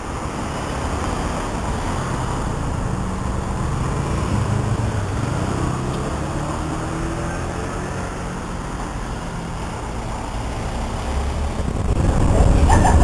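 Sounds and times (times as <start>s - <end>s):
city street traffic: 0.0s - 13.0s
vehicle engine running nearby: 0.0s - 13.0s.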